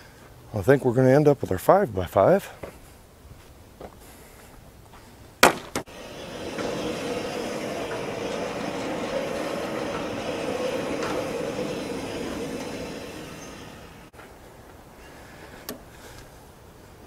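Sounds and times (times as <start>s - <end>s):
carriage wheels rolling on rails: 5.9s - 14.2s.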